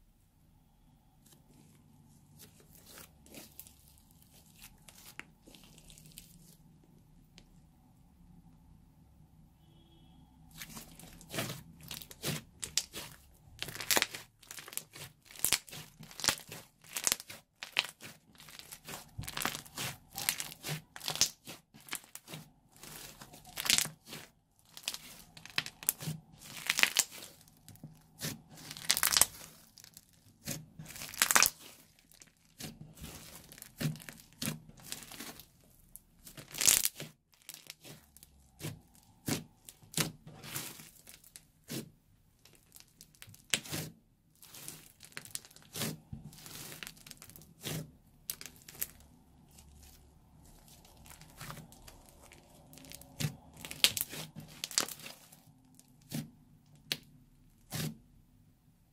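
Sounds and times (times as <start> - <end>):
sticky slime crackling: 2.2 - 6.8, 10.5 - 58.1.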